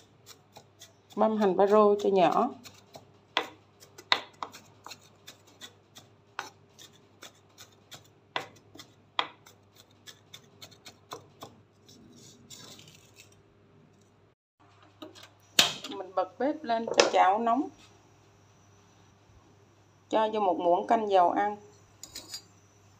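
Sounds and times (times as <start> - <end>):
knife scraping across board: 2.6 - 13.4.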